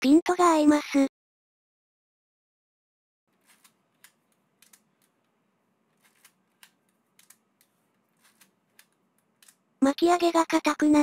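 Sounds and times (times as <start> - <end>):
camera film winding clicks: 3.4 - 5.2, 6.0 - 9.6.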